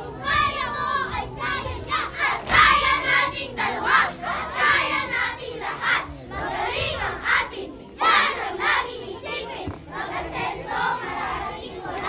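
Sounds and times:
children shouting and singing: 0:00.0 - 0:12.0
music: 0:00.0 - 0:12.0.

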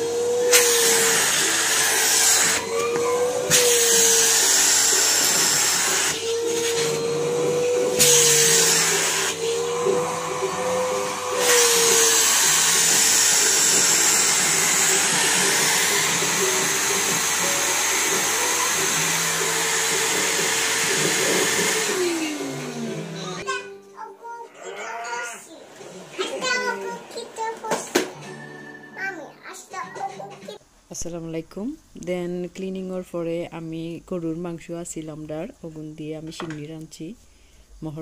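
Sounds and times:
vacuum cleaner running: 0:00.0 - 0:23.5.

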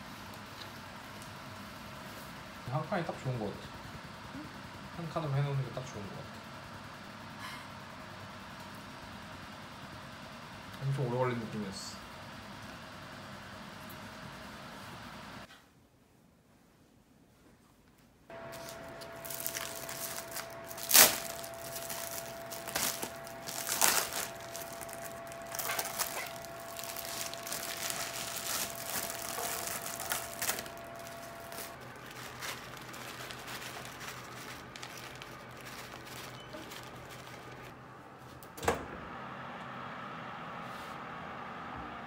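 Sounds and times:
plastic wrapper crinkling: 0:18.4 - 0:37.7.

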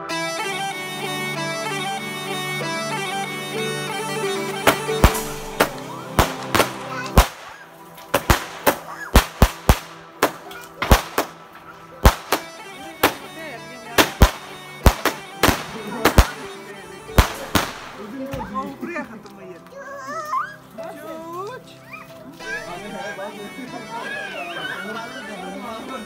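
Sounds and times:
bagpipe tune: 0:00.0 - 0:19.0, 0:22.4 - 0:26.0
fireworks bangs: 0:04.5 - 0:18.5.

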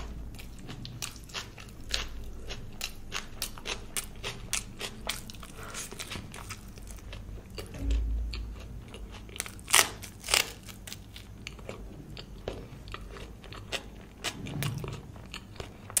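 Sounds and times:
chewing food: 0:00.0 - 0:16.0.

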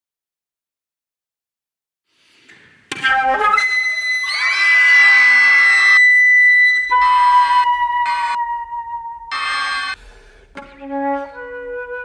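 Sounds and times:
solo flute playing: 0:03.0 - 0:09.9, 0:10.6 - 0:12.0.

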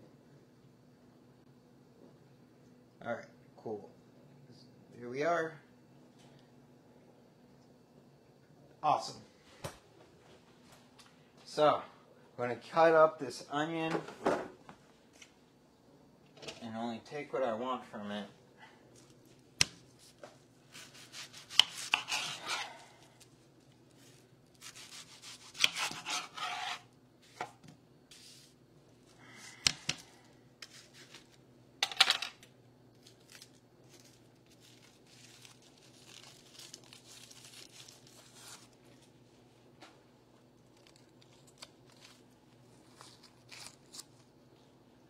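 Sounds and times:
low steady hum: 0:00.0 - 0:45.0
knife crunching through onion: 0:19.6 - 0:23.3, 0:24.0 - 0:27.4, 0:42.8 - 0:44.2
knife scraping: 0:20.7 - 0:23.0, 0:24.0 - 0:27.5.

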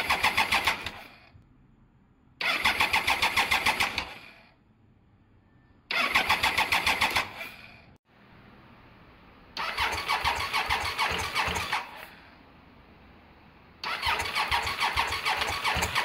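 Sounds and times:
motorcycle engine cranking: 0:00.0 - 0:01.2, 0:02.4 - 0:04.3, 0:05.9 - 0:07.8, 0:09.6 - 0:12.1, 0:13.8 - 0:16.0.

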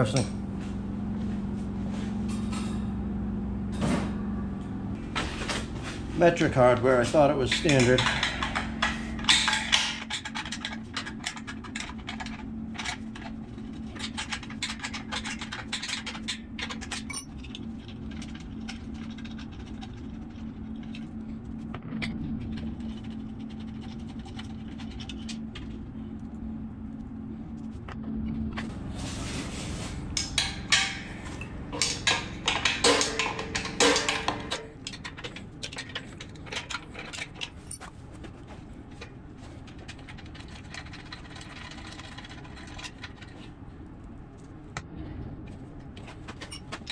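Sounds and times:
steady low hum: 0:00.0 - 0:46.9
metal tools clinking and scraping: 0:06.3 - 0:13.3, 0:13.9 - 0:17.6, 0:30.2 - 0:37.9, 0:46.4 - 0:46.9.

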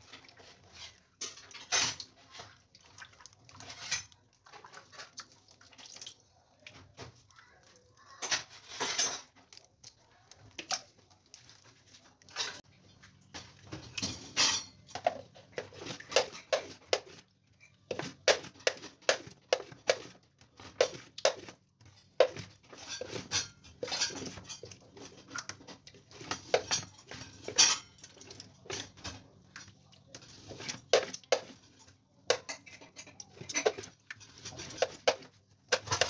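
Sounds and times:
wet squelches and clicks: 0:00.1 - 0:08.0, 0:09.4 - 0:12.4.

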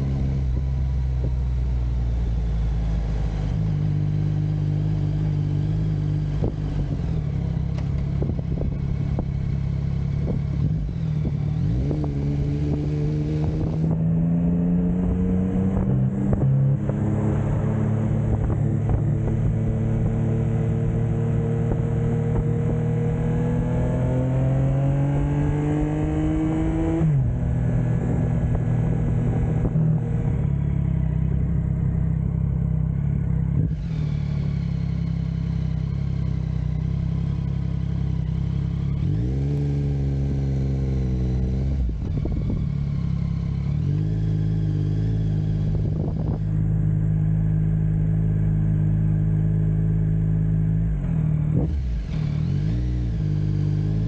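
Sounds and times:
motorcycle engine accelerating: 0:00.0 - 0:54.0.

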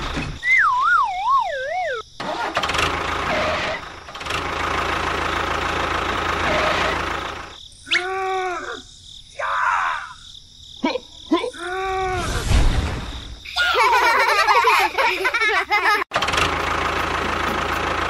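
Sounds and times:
vehicle engine running: 0:02.2 - 0:07.6, 0:16.1 - 0:18.0.

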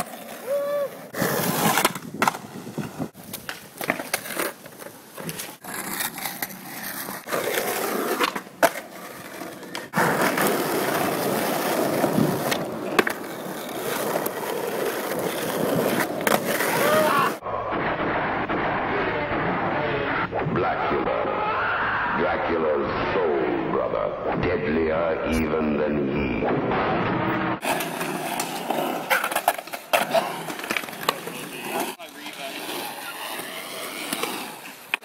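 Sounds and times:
skateboard wheels rolling on concrete: 0:00.0 - 0:20.1, 0:27.6 - 0:35.0
skateboard clacking on ground: 0:01.6 - 0:07.4, 0:08.1 - 0:17.1, 0:27.6 - 0:35.0.

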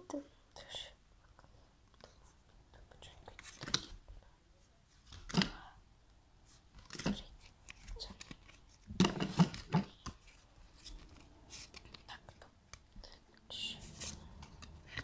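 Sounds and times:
trading cards rustling and tapping: 0:06.7 - 0:13.0, 0:13.9 - 0:15.0.

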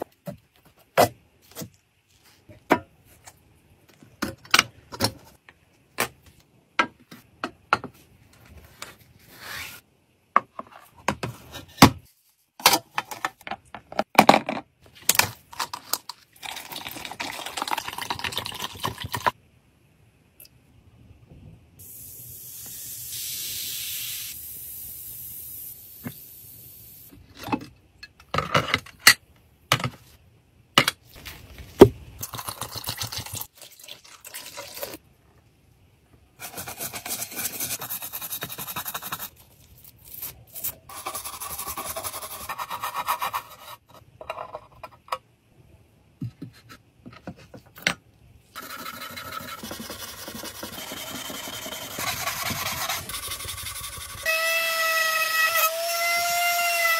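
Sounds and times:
powder pouring into water: 0:16.4 - 0:19.3.

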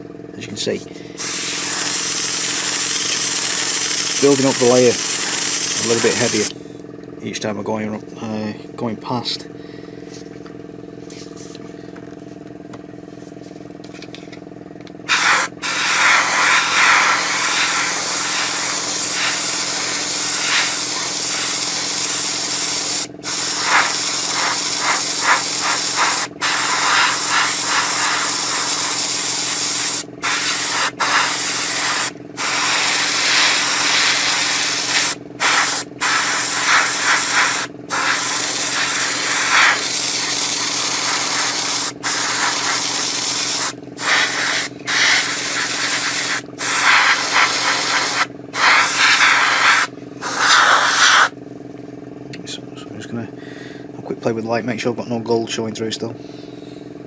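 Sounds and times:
air compressor motor hum: 0:00.0 - 0:55.2, 0:56.0 - 0:57.0
airbrush spraying paint: 0:01.1 - 0:06.5, 0:15.1 - 0:51.4.

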